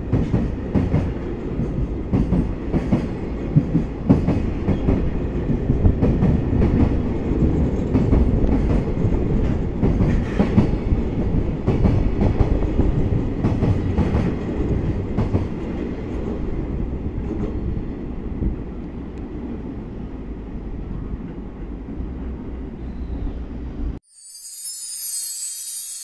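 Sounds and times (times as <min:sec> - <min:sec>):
train rumble: 0:00.0 - 0:24.0.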